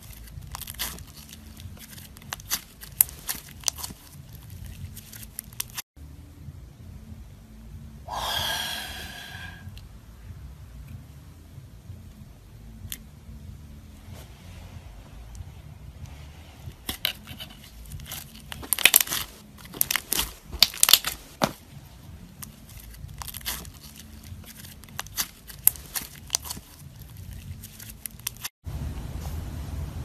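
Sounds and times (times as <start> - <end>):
slime crackling and popping: 0.0 - 5.8, 16.8 - 21.6, 22.3 - 28.5.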